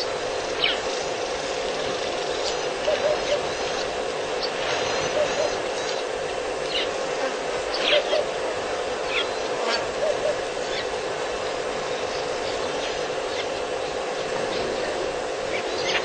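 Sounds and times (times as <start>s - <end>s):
insect drone: 0.0s - 16.0s
bird two-note hoot: 2.8s - 3.6s, 5.0s - 5.7s, 9.1s - 10.8s.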